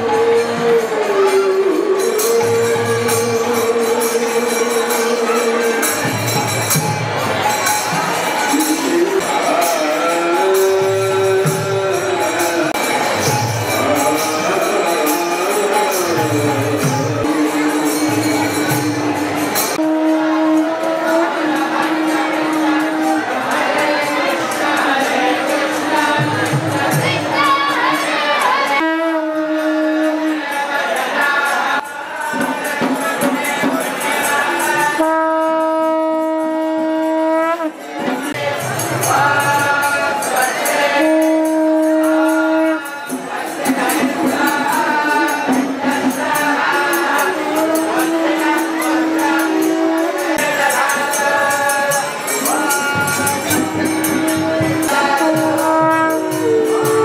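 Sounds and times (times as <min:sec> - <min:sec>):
devotional singing: 0:00.0 - 0:06.6, 0:07.7 - 0:57.0
jangling hand cymbals: 0:00.0 - 0:57.0
conch shell blasts: 0:19.4 - 0:23.4, 0:28.7 - 0:30.5, 0:34.9 - 0:37.9, 0:40.9 - 0:43.2, 0:47.4 - 0:51.5, 0:52.2 - 0:57.0.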